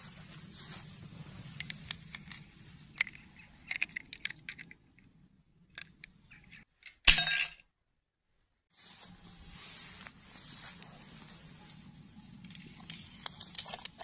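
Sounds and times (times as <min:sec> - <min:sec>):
rustling in grass: 0:00.0 - 0:03.3, 0:08.7 - 0:14.0
small plastic clicks: 0:01.6 - 0:05.1.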